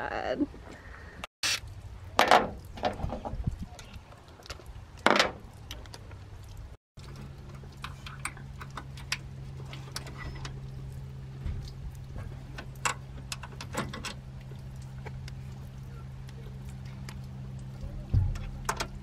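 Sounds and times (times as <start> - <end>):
steady low hum: 5.5 - 19.0.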